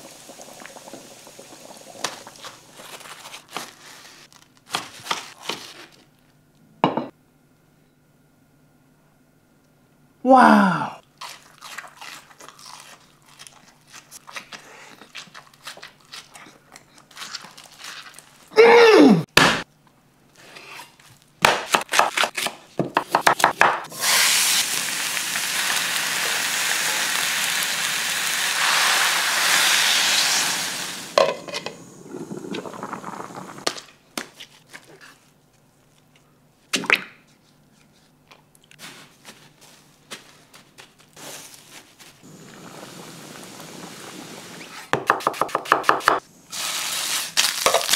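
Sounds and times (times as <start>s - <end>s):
voiced exclamation: 10.2s - 11.0s, 18.5s - 19.3s
steady rushing hiss: 42.3s - 44.7s.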